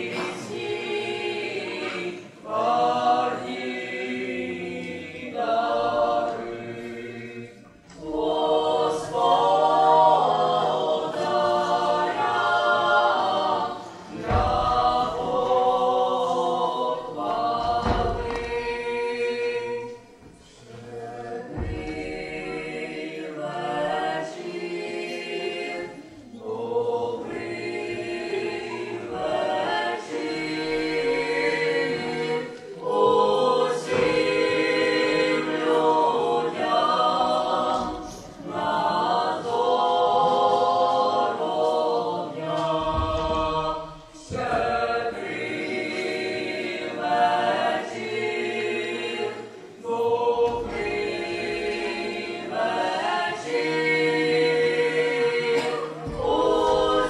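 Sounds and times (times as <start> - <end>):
choir singing a carol: 0.0 - 57.0.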